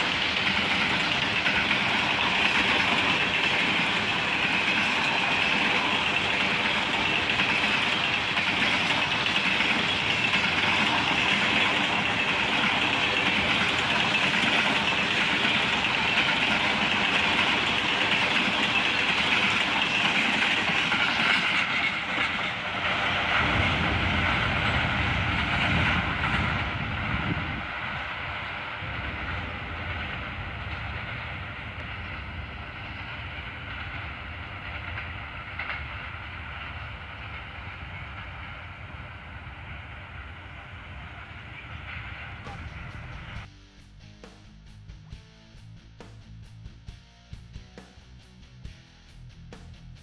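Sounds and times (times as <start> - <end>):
freight train rolling on rails: 0.0 - 43.5.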